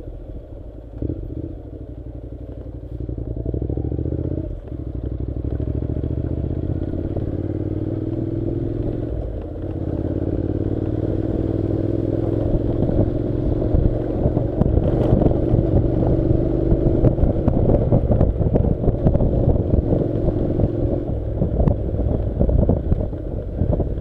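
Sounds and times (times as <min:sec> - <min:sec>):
motorcycle engine running: 0:00.0 - 0:24.0
wind buffeting microphone: 0:10.5 - 0:24.0.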